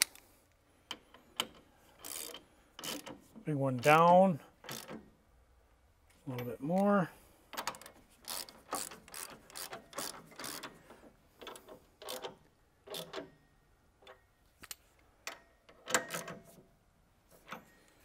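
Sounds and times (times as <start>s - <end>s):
ratchet wrench clicking: 0.9s - 3.2s, 3.9s - 5.0s, 7.6s - 10.8s, 11.4s - 13.3s.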